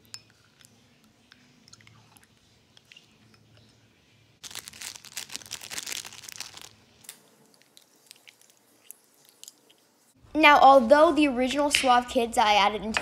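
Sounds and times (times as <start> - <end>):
spoon stirring liquid soap: 0.0 - 4.1.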